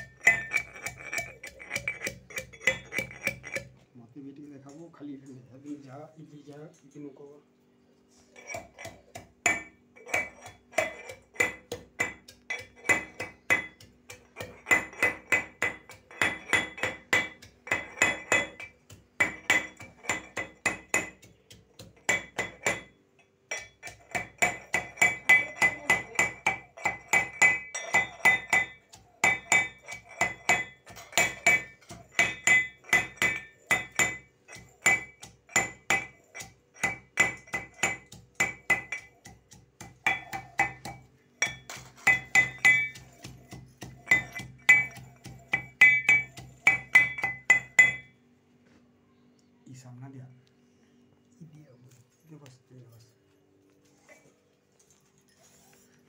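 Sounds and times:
metal pestle striking metal mortar: 0.0s - 3.8s, 8.4s - 48.2s.

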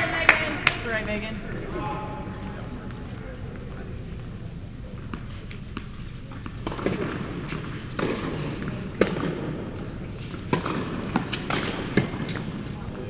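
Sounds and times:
tennis balls struck by rackets: 5.0s - 12.9s
tennis balls bouncing on hard court: 5.1s - 12.8s.

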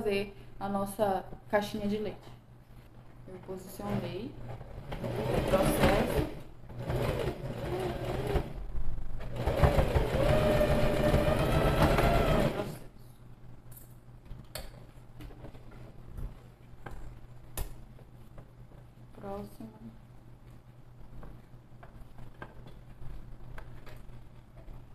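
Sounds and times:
sewing machine stitching: 3.8s - 8.6s, 9.2s - 12.9s.

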